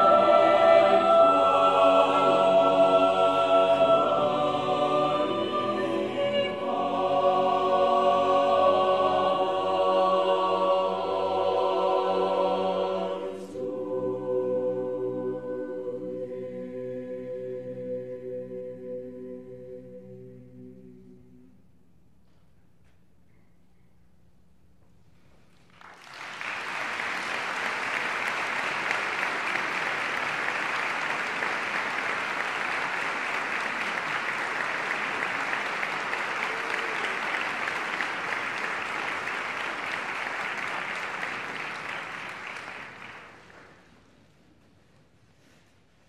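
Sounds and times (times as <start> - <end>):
audience applauding: 25.7 - 43.9.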